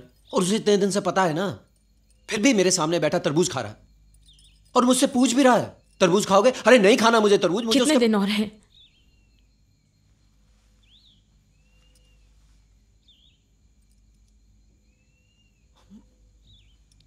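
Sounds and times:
low room hum: 0.0s - 17.0s
faint bird calls: 10.8s - 13.4s, 14.9s - 17.0s.

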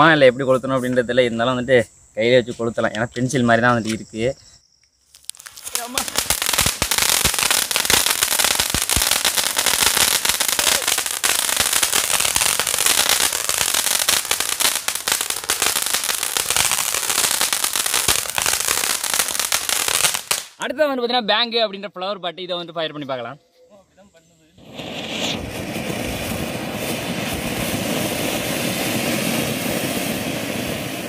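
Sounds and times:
firework spark spray hissing: 5.1s - 20.6s, 24.6s - 31.0s
rapid crackling pops: 5.1s - 20.6s.

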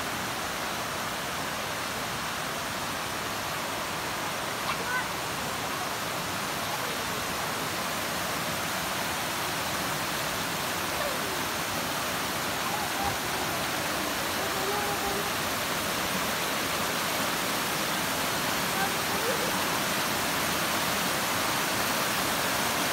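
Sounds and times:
creek rushing over rocks: 0.0s - 22.9s.

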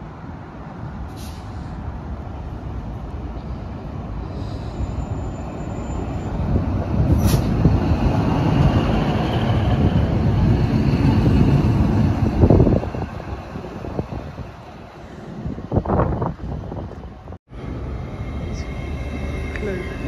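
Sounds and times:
diesel train passing: 0.0s - 20.0s.

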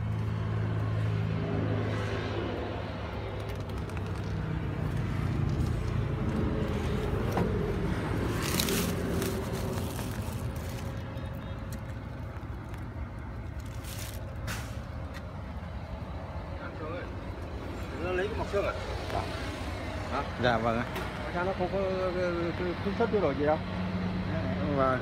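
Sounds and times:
diesel engine idling: 2.4s - 25.0s
rustling and scraping: 3.4s - 15.3s.

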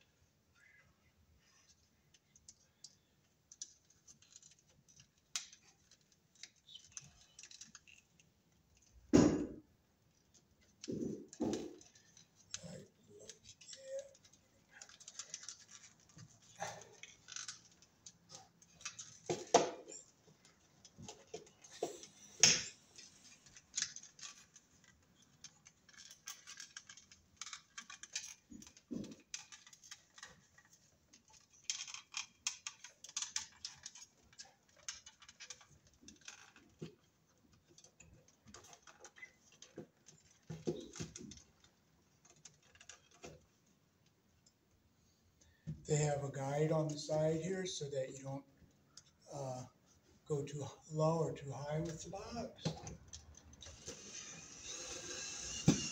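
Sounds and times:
cable handling clicks and scrapes: 1.6s - 9.0s, 10.1s - 43.6s.

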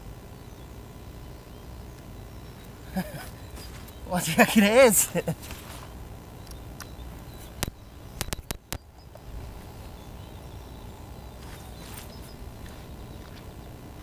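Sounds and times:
sharp clicks: 6.4s - 8.9s.

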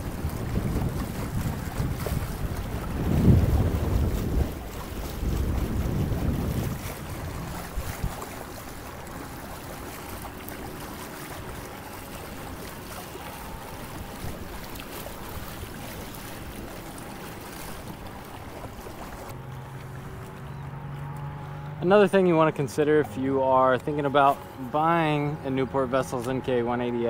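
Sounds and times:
wind on microphone: 0.0s - 10.2s, 12.6s - 19.4s
water rushing along a hull: 0.0s - 27.0s.

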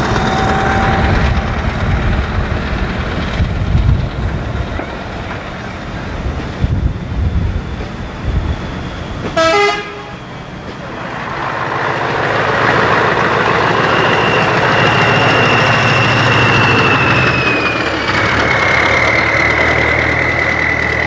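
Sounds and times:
truck engine running loud: 0.0s - 21.0s
high falling whistle: 13.4s - 21.0s.

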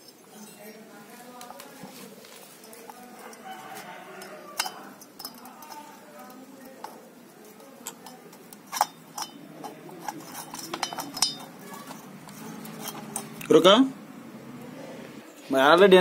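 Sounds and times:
light metallic clinks and taps: 1.4s - 13.5s.

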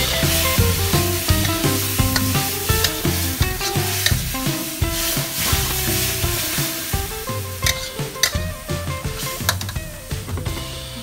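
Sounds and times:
metal spatula scraping a wok: 0.0s - 9.8s
meat sizzling in a wok: 0.0s - 10.8s
background music: 0.0s - 11.0s.

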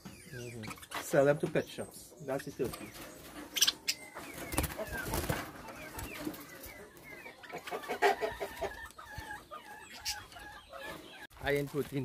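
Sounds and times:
poultry clucking and calling: 0.0s - 12.0s.

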